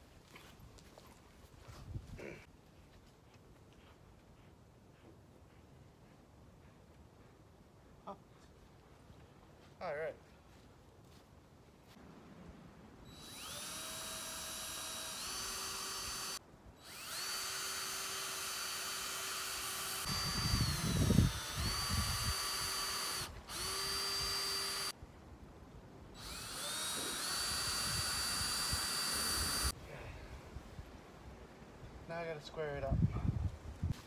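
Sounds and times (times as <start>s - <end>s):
cordless drill whirring: 13.1s - 25.0s, 26.2s - 29.8s.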